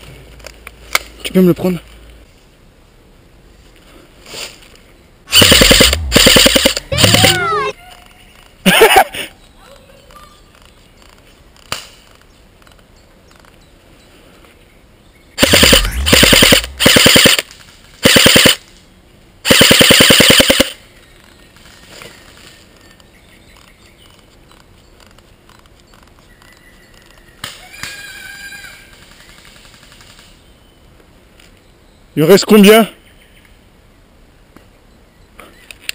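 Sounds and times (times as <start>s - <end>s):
airsoft rifle automatic fire: 5.3s - 7.7s, 15.4s - 18.6s, 19.5s - 20.8s.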